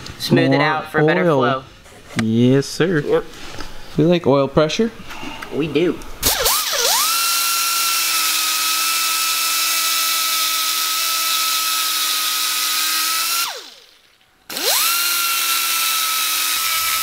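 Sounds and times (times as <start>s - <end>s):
die grinder high whine: 6.2s - 17.0s.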